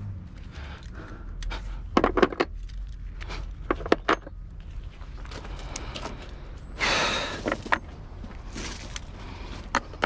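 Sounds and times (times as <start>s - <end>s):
hand tools clanking on metal: 9.6s - 10.0s.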